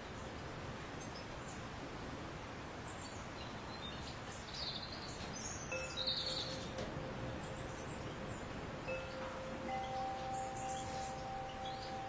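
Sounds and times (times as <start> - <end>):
background hiss: 0.0 - 12.0
finch chirping and twittering: 2.9 - 12.0
steady ringing tone: 5.7 - 12.0.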